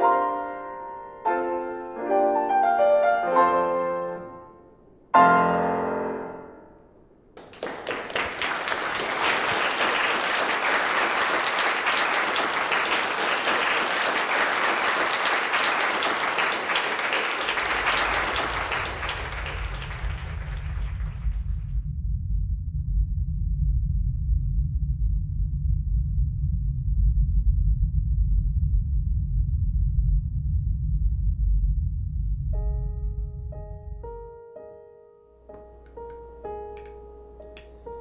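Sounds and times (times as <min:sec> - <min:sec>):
grand piano playing chords: 0:00.0 - 0:09.7, 0:10.3 - 0:21.6, 0:32.4 - 0:38.0
applause: 0:07.4 - 0:21.7
low rumble: 0:17.7 - 0:34.3.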